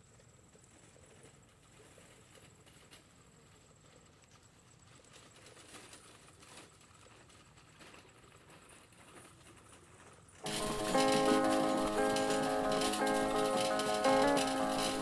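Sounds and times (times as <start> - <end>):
thin high whine: 10.4 - 15.0.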